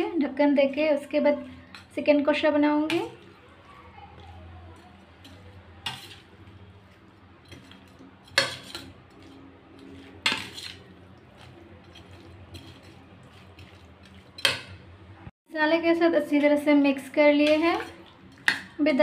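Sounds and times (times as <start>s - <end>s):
spoon scraping steel plate: 4.2s - 14.8s.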